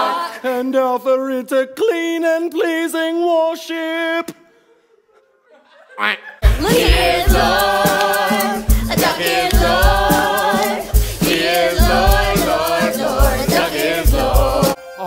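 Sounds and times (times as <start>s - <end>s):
drum beat: 6.4s - 14.8s
cast singing in chorus: 6.4s - 15.0s.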